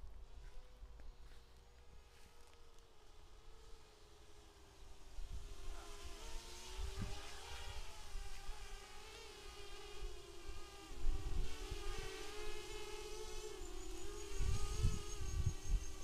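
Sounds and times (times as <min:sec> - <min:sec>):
drone motors whining: 0:00.4 - 0:16.0
wind buffeting microphone: 0:06.7 - 0:07.9, 0:13.9 - 0:16.0.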